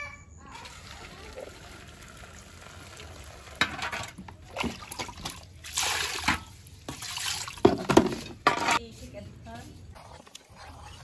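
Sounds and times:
water sloshing and splashing in basin: 0.6 - 8.8.

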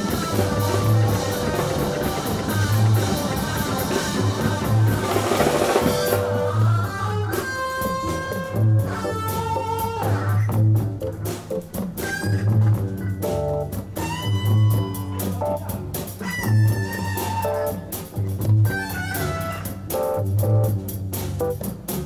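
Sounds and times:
electric guitar lead: 0.0 - 20.8
bass guitar line: 0.0 - 22.0
drum kit: 0.0 - 22.0.

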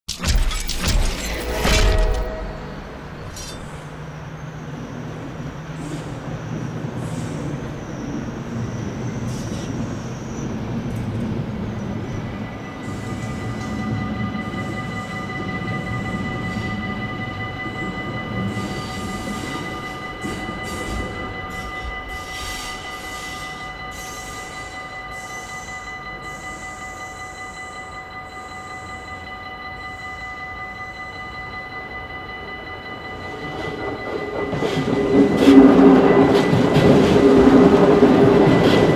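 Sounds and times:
train rumbling on tracks: 0.1 - 38.9
crossing warning bell ringing: 0.2 - 6.6, 10.0 - 38.9.

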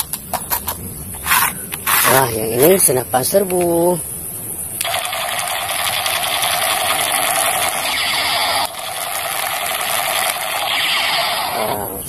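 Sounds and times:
toy rifle buzzing rattle: 0.6 - 2.8, 4.8 - 11.9.

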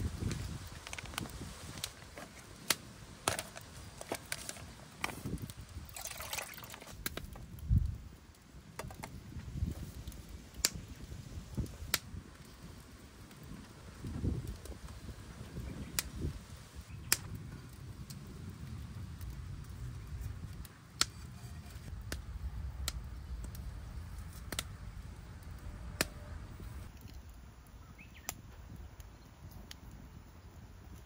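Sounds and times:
water sloshing in a pot: 5.8 - 7.0
water splash: 5.9 - 7.0.

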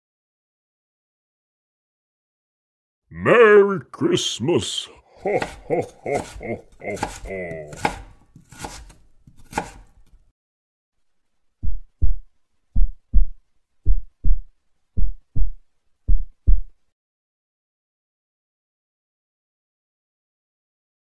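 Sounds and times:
muffled heartbeat thumps: 11.6 - 16.8.

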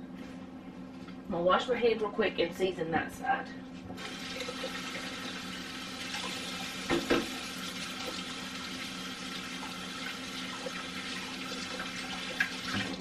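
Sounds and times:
faucet running: 4.0 - 13.0.

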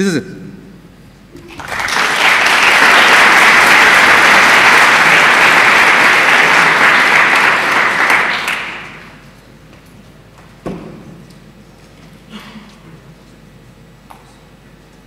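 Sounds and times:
audience applauding: 1.4 - 9.2.

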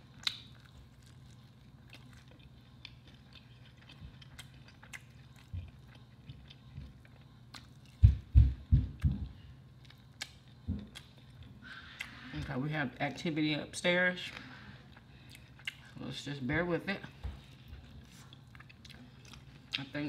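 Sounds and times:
chewing and crunchy bites: 0.0 - 8.2, 9.7 - 12.5, 14.3 - 16.0, 17.4 - 20.0.

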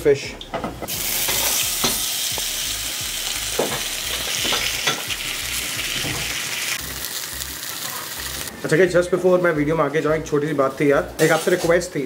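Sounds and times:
fish sizzling in hot oil: 0.9 - 8.5.

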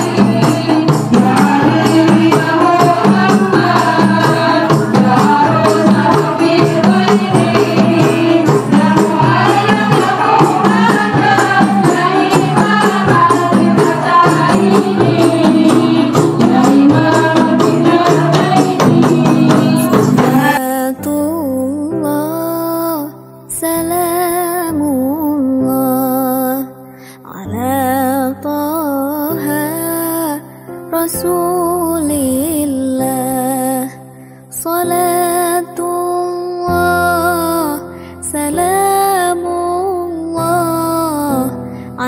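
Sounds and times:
frame drums played quickly: 0.0 - 20.7
group singing devotional song: 0.0 - 42.0.

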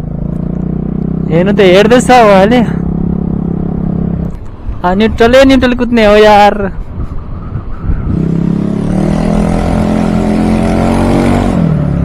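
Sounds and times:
scooter engine with broken muffler: 0.0 - 4.5.

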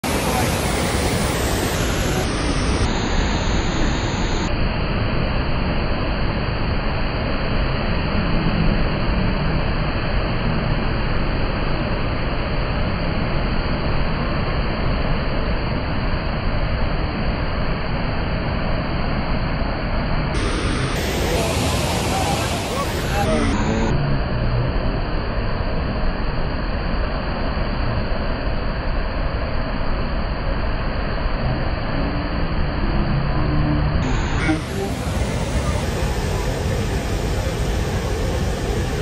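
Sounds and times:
waterfall rushing: 0.0 - 4.5, 20.4 - 23.9, 34.0 - 39.0.

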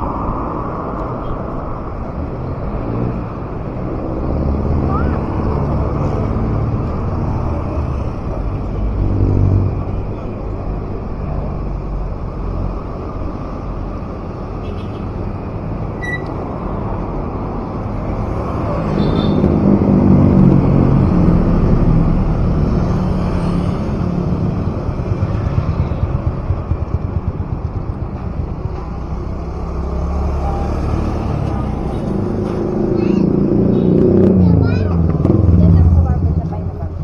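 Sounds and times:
wind and road noise: 0.0 - 37.0
short high beep: 16.0 - 16.4
vehicle engine running: 24.3 - 29.9.

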